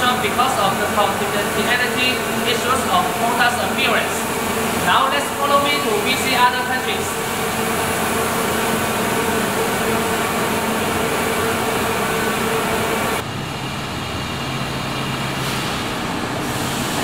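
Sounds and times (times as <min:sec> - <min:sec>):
machine mechanical hum: 0:00.0 - 0:17.0.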